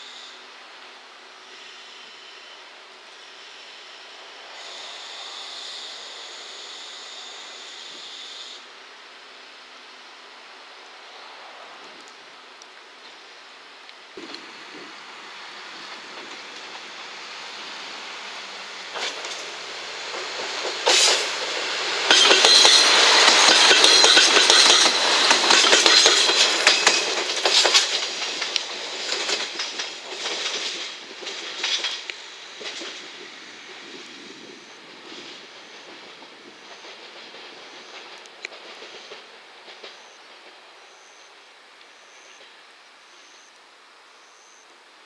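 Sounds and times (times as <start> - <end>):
diesel train passing: 0.0 - 42.7
wheels clattering over rail joints: 14.2 - 34.0.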